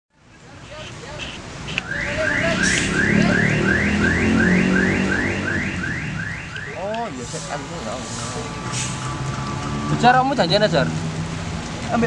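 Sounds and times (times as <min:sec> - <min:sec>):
electronic alarm chirping: 0:01.9 - 0:06.8.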